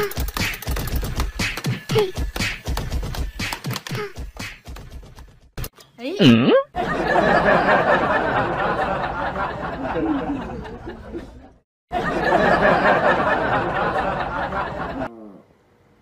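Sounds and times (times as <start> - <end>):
canned audience laughter: 6.8 - 15.1.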